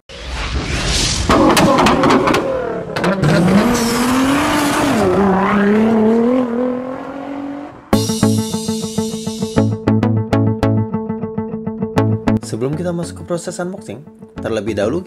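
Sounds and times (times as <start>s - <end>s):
car engine revving: 1.3s - 8.0s.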